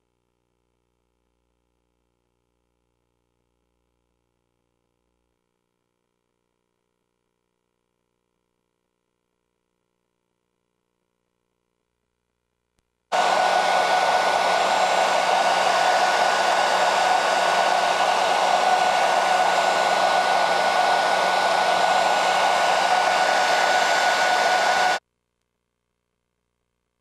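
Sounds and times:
hair dryer blowing: 0:13.1 - 0:25.0.

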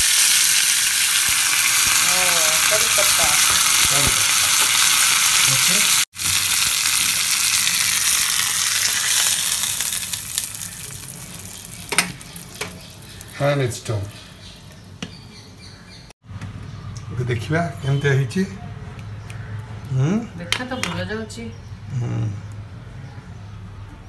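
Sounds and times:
chillies sizzling in hot oil: 0:00.0 - 0:14.8.

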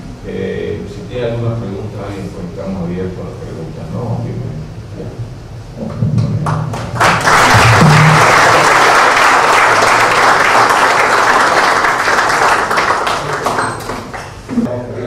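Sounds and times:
audience applauding: 0:06.4 - 0:14.5.

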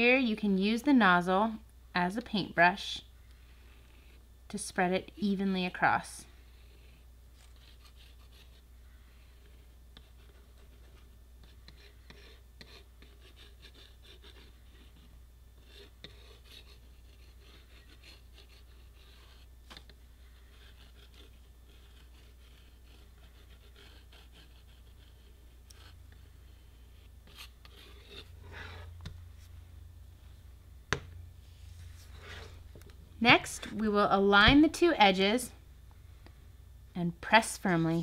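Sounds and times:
plastic nozzle scratching plastic: 0:09.4 - 0:26.2.

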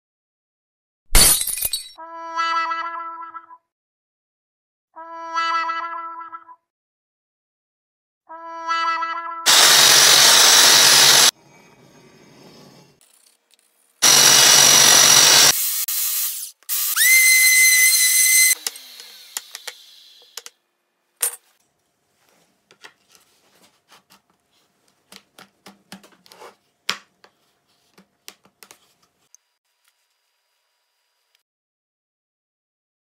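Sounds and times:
belt sander on wood: 0:09.5 - 0:11.3, 0:14.0 - 0:20.2
power tool whine: 0:09.5 - 0:11.3, 0:14.0 - 0:20.4.

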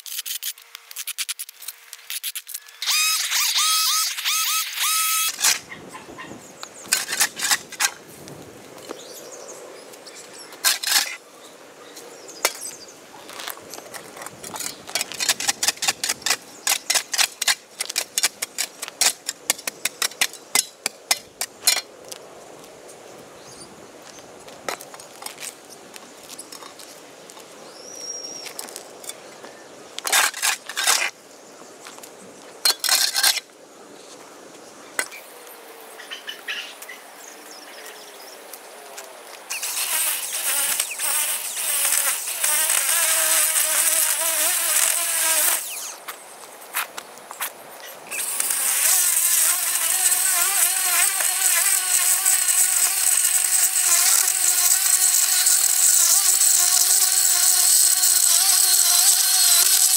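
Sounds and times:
spade scraping turf: 0:30.0 - 0:31.1.

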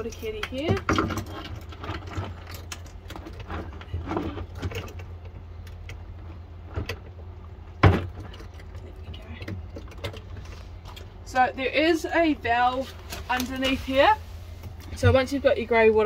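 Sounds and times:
steady low rumble: 0:00.0 - 0:16.0.

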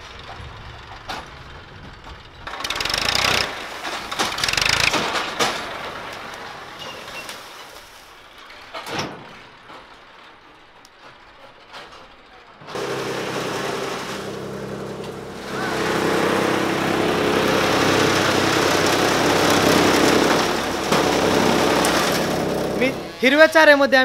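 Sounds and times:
chaff cutter machine humming: 0:02.5 - 0:06.4, 0:12.7 - 0:23.6
rushing chop of fodder cutting: 0:12.7 - 0:23.5.

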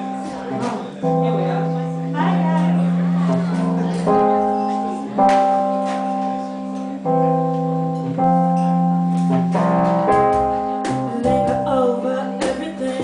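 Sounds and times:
electric bass line: 0:00.0 - 0:11.9
piano chords: 0:00.0 - 0:13.0
cajon strikes: 0:05.2 - 0:06.2, 0:08.0 - 0:11.8.

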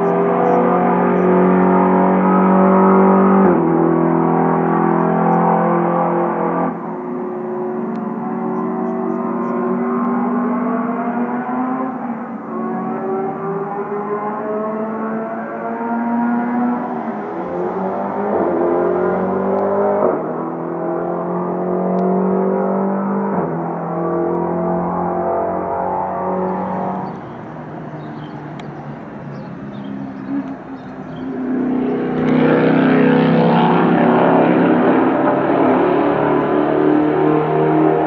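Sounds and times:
race car engine accelerating: 0:00.0 - 0:38.0.

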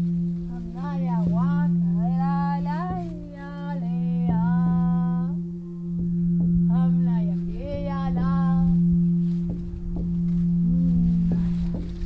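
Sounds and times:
steady low drone: 0:00.0 - 0:12.0
voice chanting: 0:00.5 - 0:05.5, 0:06.7 - 0:09.0.

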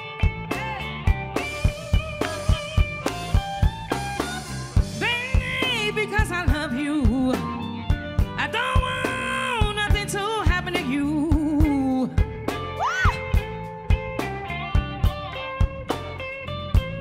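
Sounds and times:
bass: 0:00.0 - 0:17.0
drums: 0:00.0 - 0:17.0
electric guitar: 0:00.0 - 0:17.0
woman singing with vibrato: 0:05.0 - 0:07.6, 0:08.4 - 0:12.2.

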